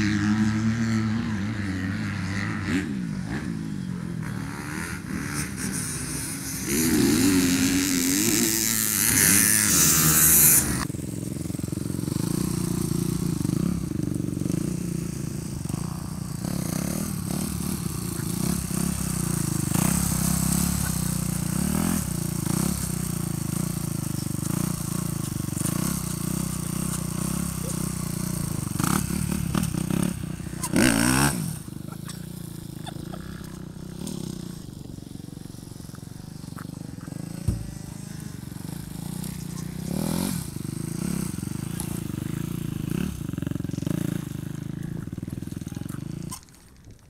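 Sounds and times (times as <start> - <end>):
motocross bike engine revving: 0.0 - 47.0.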